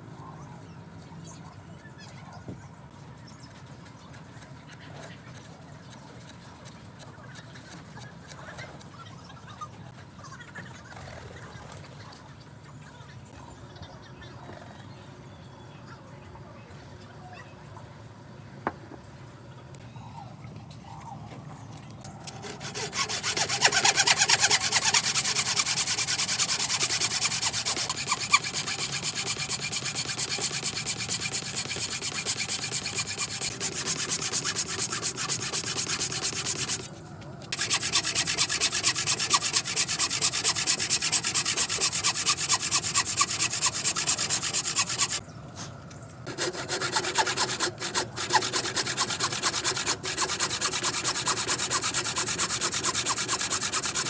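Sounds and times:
saw rasping through wood: 0:22.3 - 0:36.9, 0:37.5 - 0:45.2, 0:46.3 - 0:54.0.

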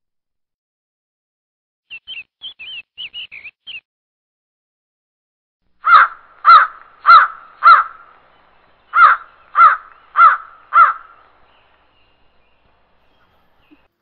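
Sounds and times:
crow cawing: 0:05.8 - 0:12.1.

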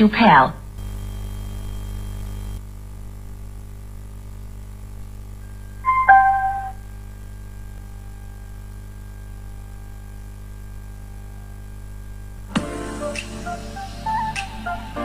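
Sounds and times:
faint amplifier hum: 0:00.0 - 0:12.8
electronic pairing chime: 0:05.9 - 0:06.8.

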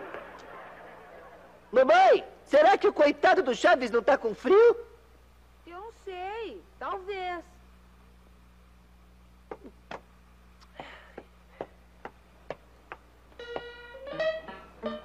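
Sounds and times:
plucked-string music: 0:13.4 - 0:15.0.

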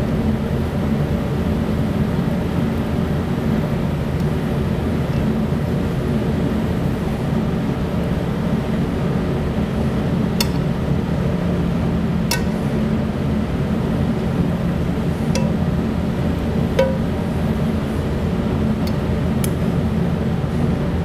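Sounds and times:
steady low hum: 0:00.0 - 0:21.0
metal tongs clinking: 0:12.3 - 0:12.6, 0:15.4 - 0:15.7, 0:16.8 - 0:17.2.

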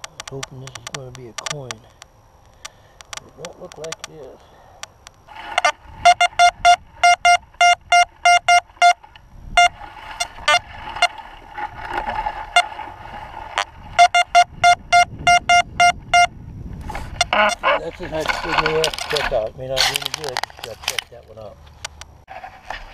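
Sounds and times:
metal detector high-pitched beeps: 0:05.6 - 0:09.0, 0:09.6 - 0:10.6, 0:14.0 - 0:16.4.

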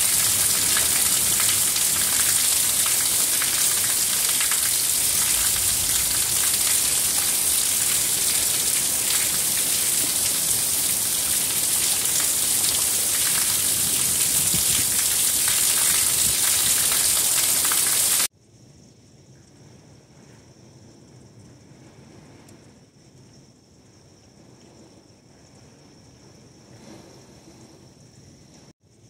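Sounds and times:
heavy rain hissing: 0:00.0 - 0:18.3
raindrops spattering: 0:00.0 - 0:18.3.

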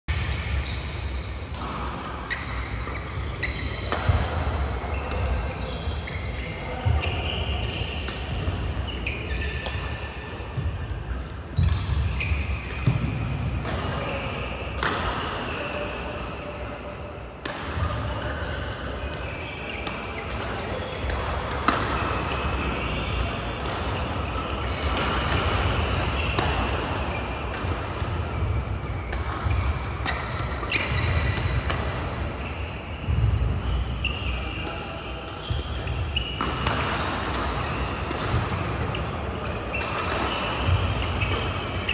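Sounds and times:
shoes squeaking on court: 0:00.2 - 0:14.9, 0:17.8 - 0:41.9
badminton rackets hitting shuttlecock: 0:03.7 - 0:04.4, 0:17.4 - 0:32.4, 0:34.6 - 0:41.6.

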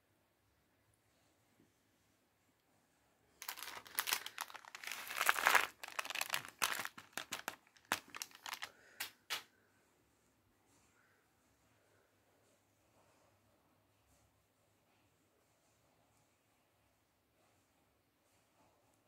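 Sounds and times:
plastic snack packet crinkling: 0:03.4 - 0:09.4.

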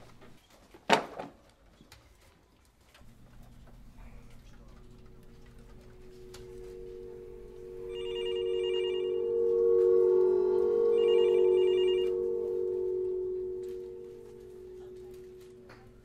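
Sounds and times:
steady low tone: 0:03.8 - 0:16.0
telephone ringing: 0:05.6 - 0:15.6.

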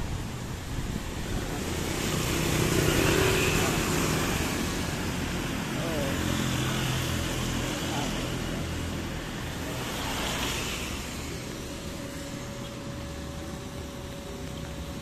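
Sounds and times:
rain: 0:00.0 - 0:11.4
thin steady whine: 0:00.0 - 0:15.0
tyres on a wet road: 0:00.0 - 0:15.0
wind: 0:00.0 - 0:15.0
scooter engine running: 0:00.1 - 0:15.0.

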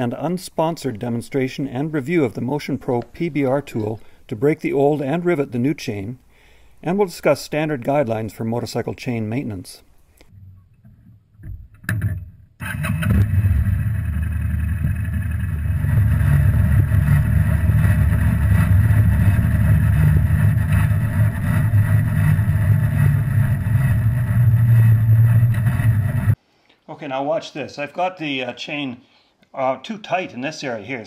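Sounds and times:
motorcycle engine running: 0:12.6 - 0:26.4
road noise: 0:12.6 - 0:26.4.

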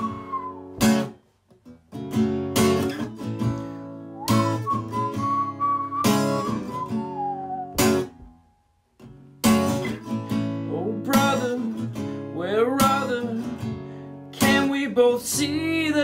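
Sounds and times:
acoustic guitar strumming: 0:00.0 - 0:16.0.

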